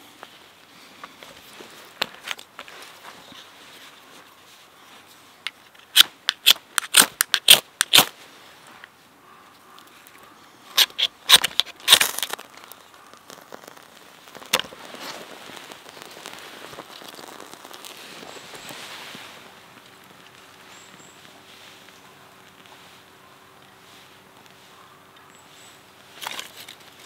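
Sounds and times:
faint soft hiss: 13.8s - 27.0s.

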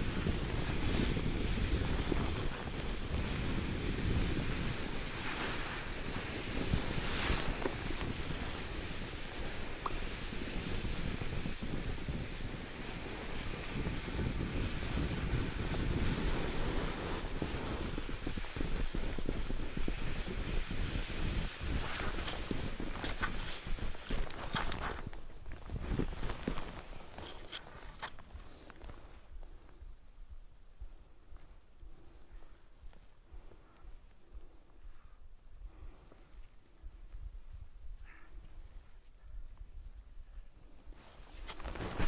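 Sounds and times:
skis sliding through snow: 0.0s - 29.3s, 40.9s - 42.0s
wind over microphone: 0.0s - 42.0s.

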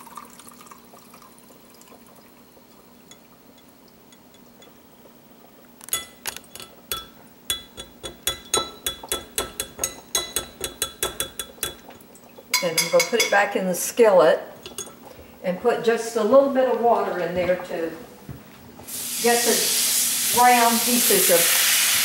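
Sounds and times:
metal strainer clinking on glass: 5.8s - 11.9s, 12.5s - 13.4s, 14.6s - 15.0s.

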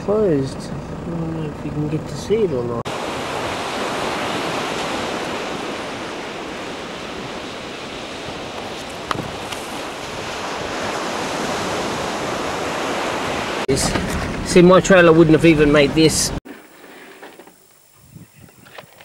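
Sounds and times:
ocean surf on beach: 2.9s - 13.7s
wind on microphone: 2.9s - 14.5s, 17.9s - 19.0s.

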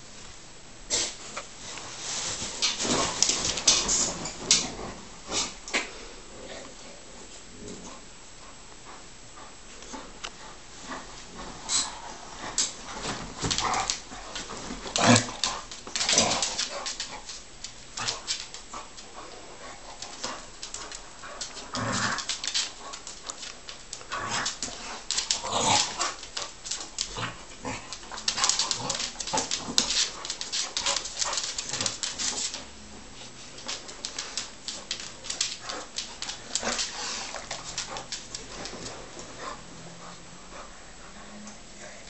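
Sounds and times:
dog claws scuffling on wooden floor: 1.6s - 5.0s, 9.8s - 39.6s.

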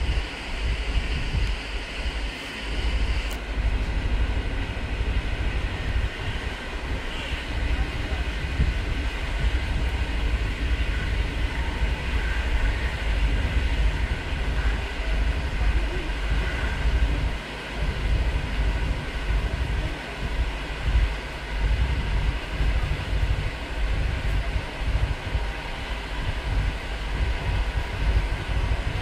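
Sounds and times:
train rumbling along track: 0.0s - 29.0s.

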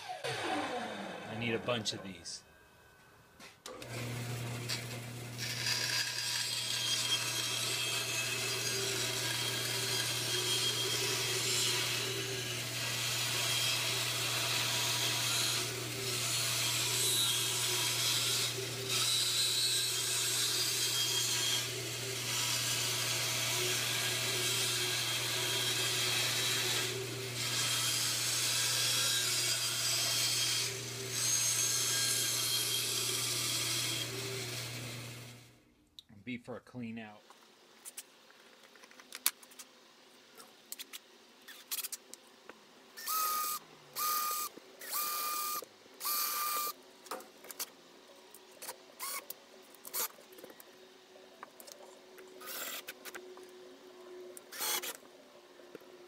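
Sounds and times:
saw blade cutting wood: 3.8s - 35.0s, 54.5s - 55.0s.

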